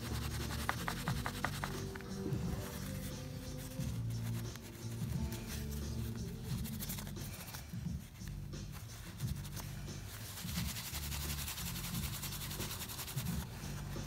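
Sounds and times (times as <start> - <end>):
quiet background music: 0.0 - 14.0.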